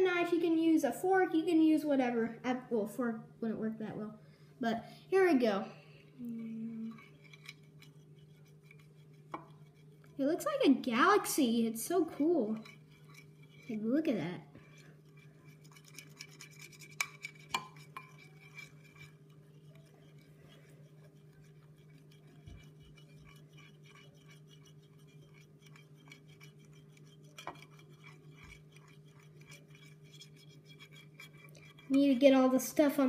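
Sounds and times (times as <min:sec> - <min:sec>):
steady low hum: 0:00.0 - 0:33.0
utensil scraping glass dish: 0:06.9 - 0:10.0, 0:12.1 - 0:13.8, 0:14.6 - 0:32.3.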